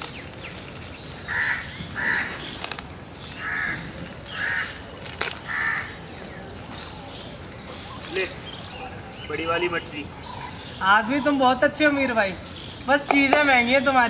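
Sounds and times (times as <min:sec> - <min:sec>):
crow cawing: 0:01.3 - 0:02.5, 0:03.4 - 0:04.8, 0:05.4 - 0:06.0.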